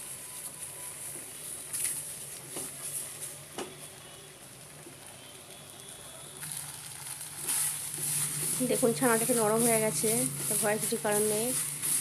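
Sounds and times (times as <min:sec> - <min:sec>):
faint sizzle: 0:00.0 - 0:12.0
spatula scraping a pan: 0:07.4 - 0:12.0.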